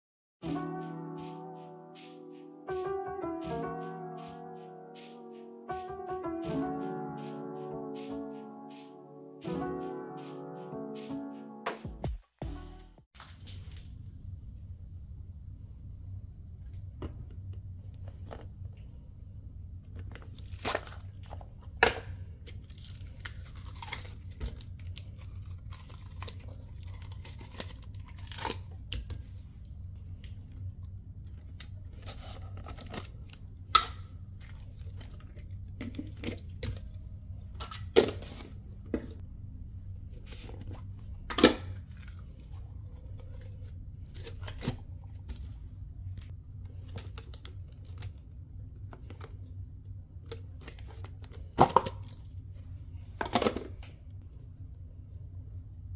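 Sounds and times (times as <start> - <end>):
steady low hum: 13.4 - 55.9.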